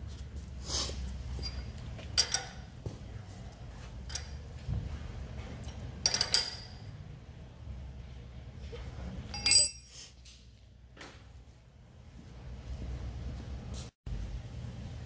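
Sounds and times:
low shop hum: 0:00.0 - 0:15.0
wrench and metal parts clinking: 0:01.3 - 0:02.7, 0:05.6 - 0:06.9, 0:09.3 - 0:10.1.

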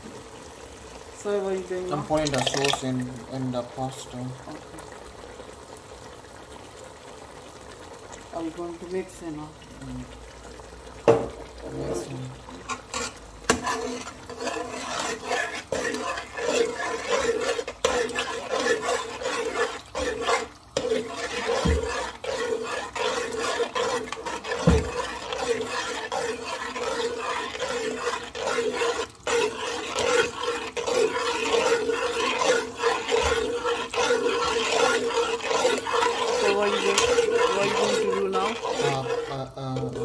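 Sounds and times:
spoon scraping a metal pot: 0:02.0 - 0:02.8, 0:11.1 - 0:40.0.

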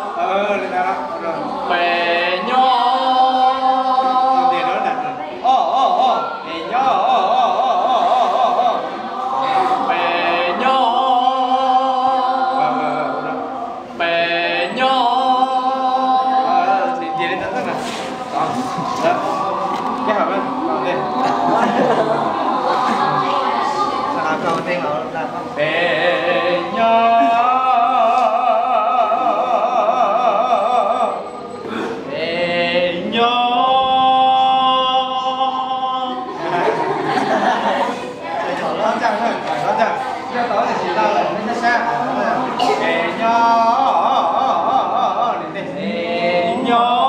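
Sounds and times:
man singing long held notes: 0:00.0 - 0:23.6, 0:25.4 - 0:36.7.

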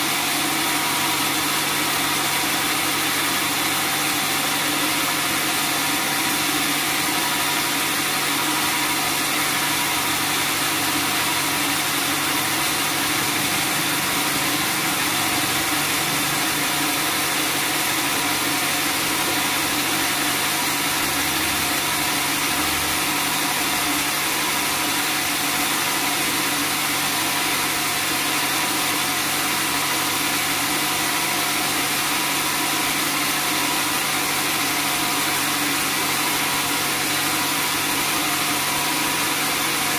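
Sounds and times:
bandsaw machine hum with hiss: 0:00.0 - 0:39.9.

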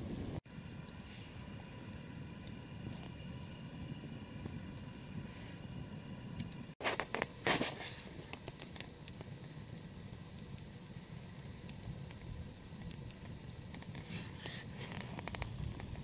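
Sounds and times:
log fire crackling: 0:00.0 - 0:16.0.

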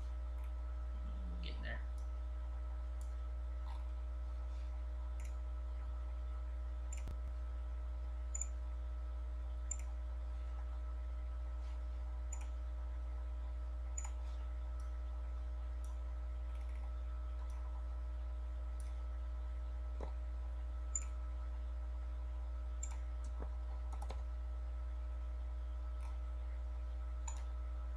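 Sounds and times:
low electrical hum: 0:00.0 - 0:27.9
computer mouse clicking: 0:05.2 - 0:05.4, 0:09.6 - 0:10.0, 0:12.3 - 0:12.6, 0:14.0 - 0:14.2, 0:20.9 - 0:21.2, 0:22.8 - 0:24.2, 0:27.2 - 0:27.5.

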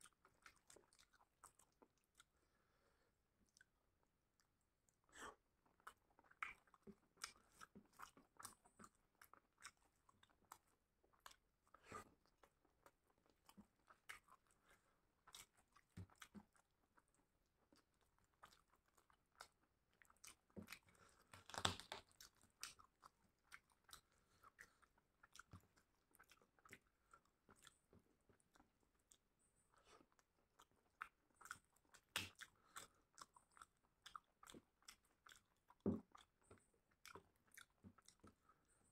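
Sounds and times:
person chewing and biting: 0:29.9 - 0:38.4.

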